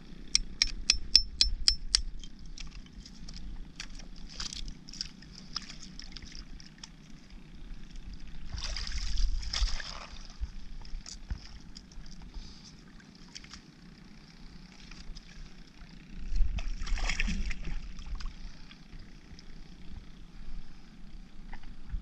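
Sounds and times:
seawater sloshing and lapping: 2.7s - 13.8s, 14.6s - 18.8s.

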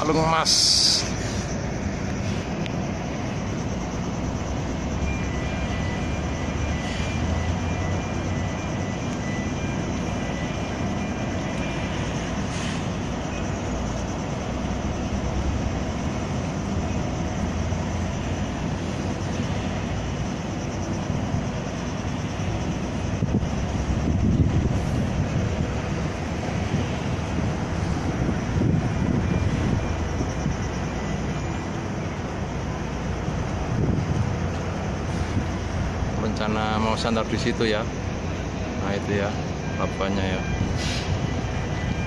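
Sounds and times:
boat engine rumble: 0.0s - 42.0s
wind on microphone: 23.1s - 30.3s, 33.7s - 34.4s.

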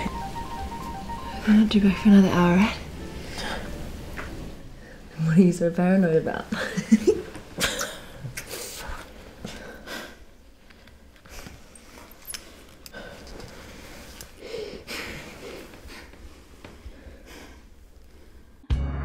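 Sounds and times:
people breathing and sighing: 3.0s - 5.2s, 6.6s - 18.6s.

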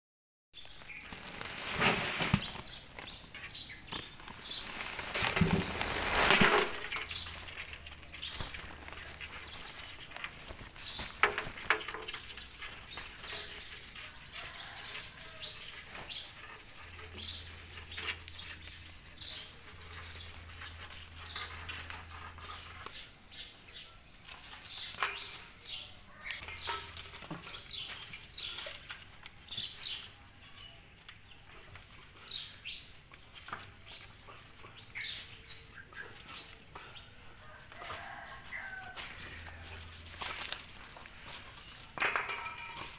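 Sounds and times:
cloth rustling: 4.1s - 7.2s.

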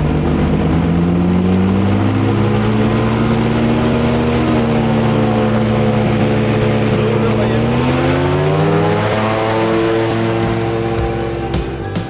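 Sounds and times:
airboat engine and propeller revving: 0.0s - 12.0s.

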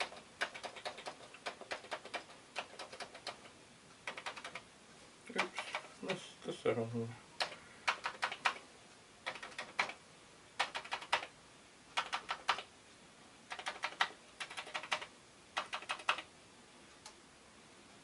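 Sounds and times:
keyboard keys clicking: 0.0s - 3.5s, 4.1s - 4.6s, 7.4s - 8.6s, 9.2s - 10.0s, 10.6s - 11.3s, 12.0s - 12.7s, 13.5s - 16.3s.

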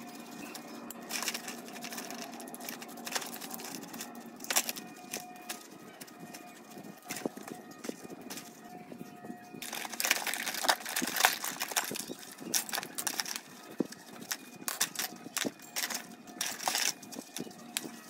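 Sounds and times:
brush scrubbing metal parts: 0.0s - 8.6s
metal parts clinking: 0.0s - 8.6s, 9.6s - 18.0s.

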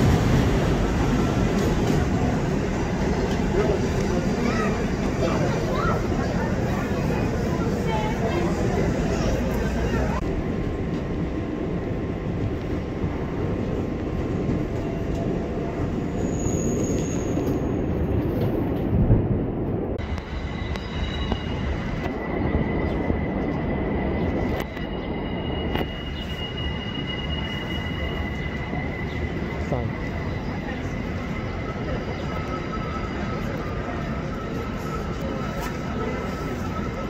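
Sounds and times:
train wheels rumbling on rails: 0.0s - 37.0s
high wheel squeal: 16.1s - 17.8s, 24.0s - 37.0s.

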